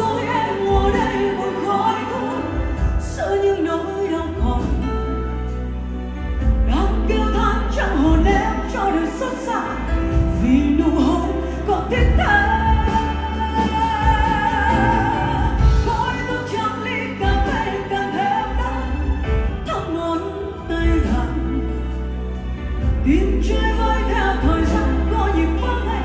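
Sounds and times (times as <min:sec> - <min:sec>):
woman singing into a microphone: 0:00.0 - 0:05.7, 0:06.6 - 0:26.0
band accompaniment: 0:00.0 - 0:26.0.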